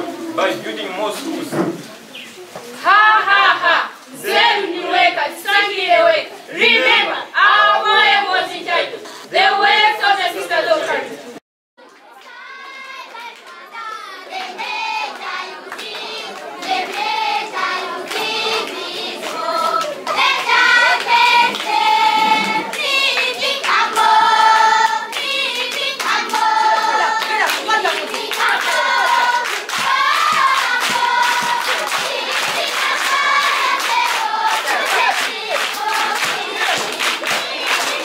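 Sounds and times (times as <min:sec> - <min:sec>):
children's choir singing: 0:02.8 - 0:11.2, 0:12.2 - 0:38.0
hand clapping: 0:27.2 - 0:38.0.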